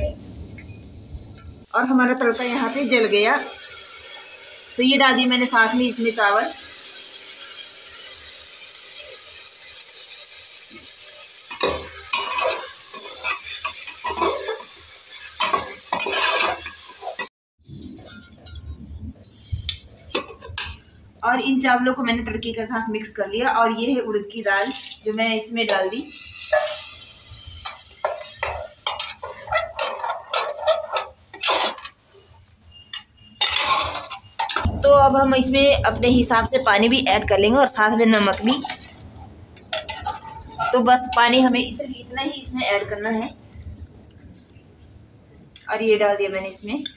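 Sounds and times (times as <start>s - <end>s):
rice sizzling in hot oil: 0.0s - 17.3s, 18.0s - 43.3s
metal spoon scraping cooker: 11.5s - 18.8s, 25.7s - 32.0s, 32.8s - 34.8s, 39.7s - 41.6s.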